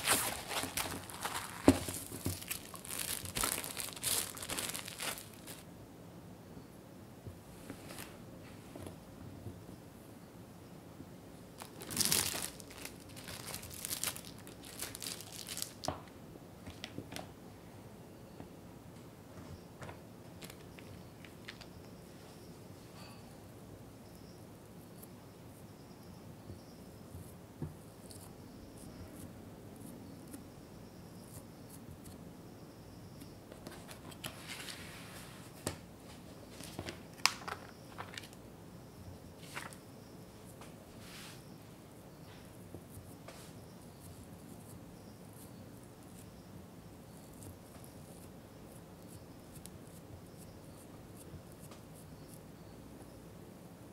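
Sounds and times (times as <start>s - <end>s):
dough handling on baking mat: 0.0s - 5.6s, 33.5s - 38.4s, 40.5s - 41.5s, 42.3s - 44.8s
plastic sheet crinkling: 0.0s - 5.6s, 11.6s - 16.0s, 36.6s - 38.4s.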